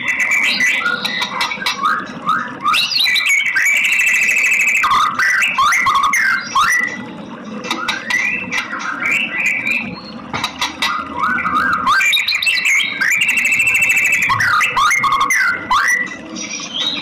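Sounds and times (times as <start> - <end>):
bird singing whistled notes: 0.0 - 7.0, 11.2 - 17.0.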